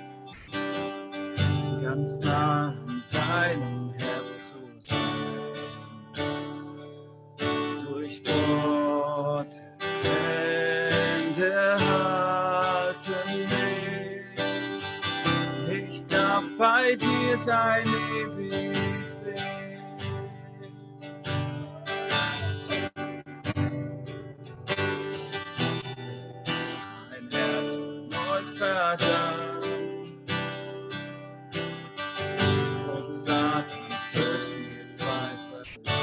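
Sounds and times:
acoustic guitar strumming: 0.0 - 36.0
man singing worship song: 1.7 - 5.2, 7.8 - 14.5, 15.6 - 20.0, 27.1 - 30.0, 32.6 - 36.0.

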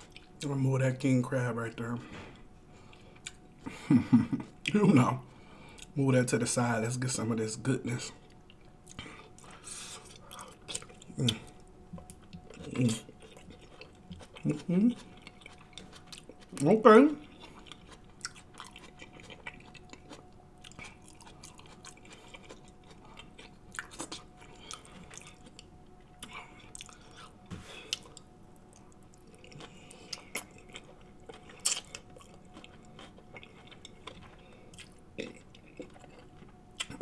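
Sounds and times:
wet chewing and lip smacking: 0.0 - 0.5, 2.9 - 3.7, 8.3 - 37.0.

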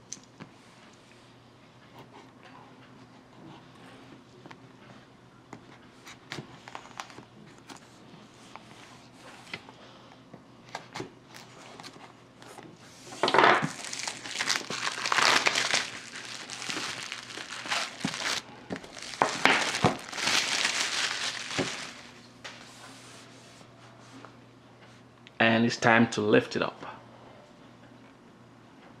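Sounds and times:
plastic film crinkling and tearing: 13.6 - 22.2.

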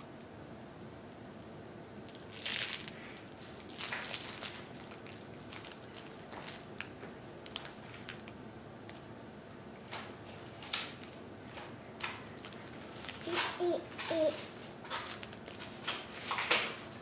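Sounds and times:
crinkly fabric rustles: 2.1 - 8.4, 12.3 - 17.0.

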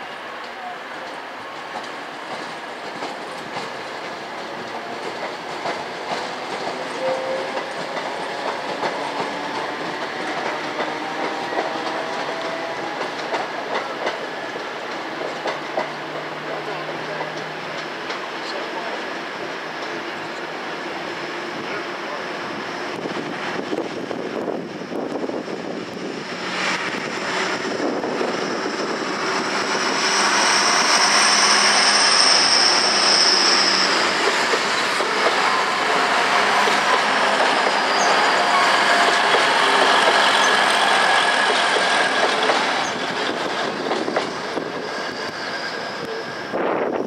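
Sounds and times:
train passing: 0.0 - 47.0
high wheel squeal: 27.5 - 46.6.

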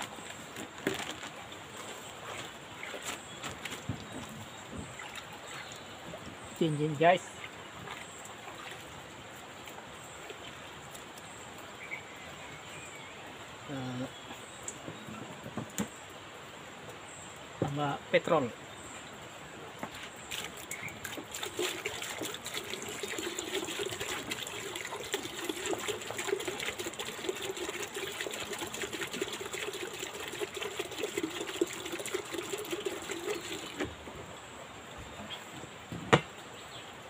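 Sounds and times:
liquid pouring into plastic bucket: 20.3 - 33.9.

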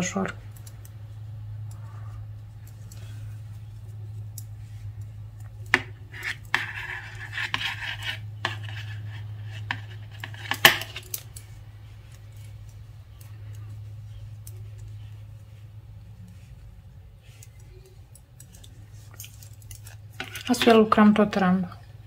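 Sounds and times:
knitting needles clicking: 0.5 - 1.0.

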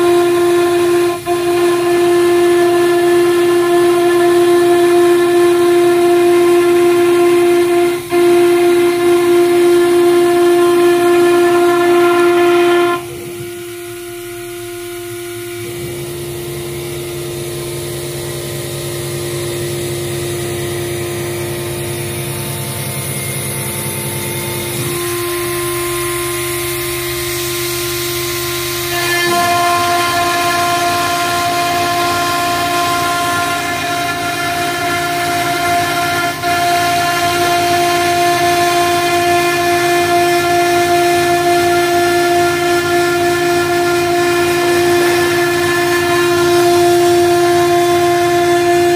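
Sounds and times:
router spindle high whine: 0.0 - 48.9
low hum: 6.9 - 36.5.

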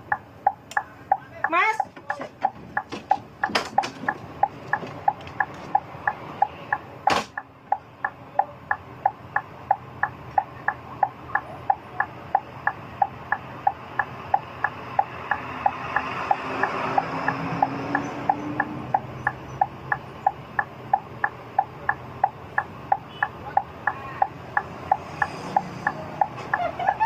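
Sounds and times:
bus engine hum: 0.0 - 27.0
sharp knock: 7.1 - 7.4.

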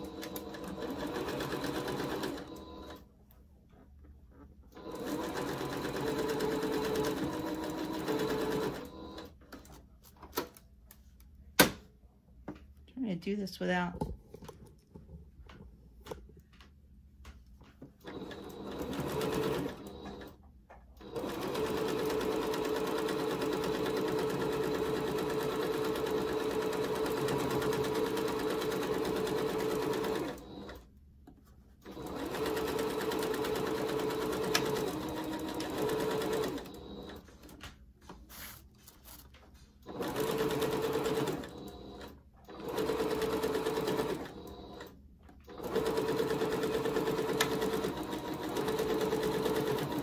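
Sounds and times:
sewing machine stitching: 0.0 - 3.0, 4.7 - 9.7, 18.0 - 20.4, 21.0 - 30.8, 31.8 - 37.6, 39.8 - 50.0.

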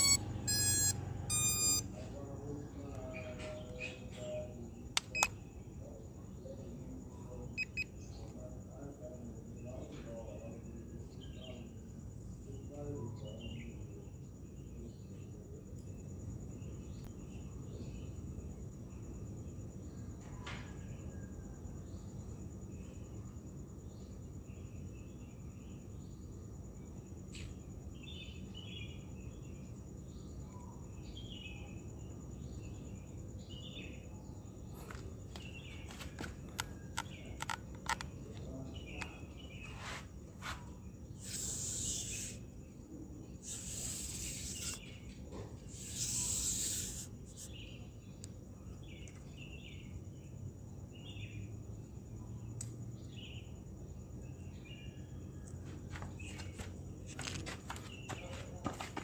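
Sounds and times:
insects chirping: 0.0 - 59.0
sharp clicks: 4.9 - 5.4, 36.5 - 38.2.

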